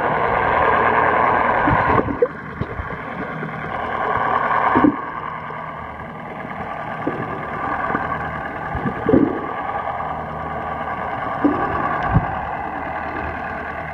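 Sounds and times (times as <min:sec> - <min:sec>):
low hum: 0:00.0 - 0:13.9
muffled underwater rushing: 0:00.0 - 0:13.9.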